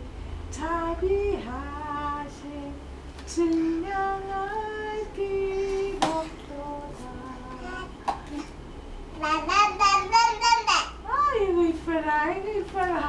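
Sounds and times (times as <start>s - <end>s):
person singing: 0.6s - 8.5s.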